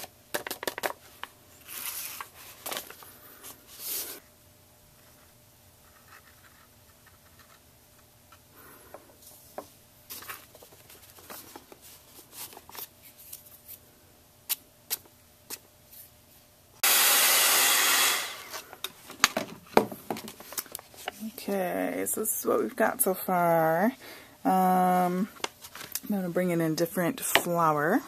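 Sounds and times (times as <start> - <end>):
heat gun blowing: 16.8 - 18.6.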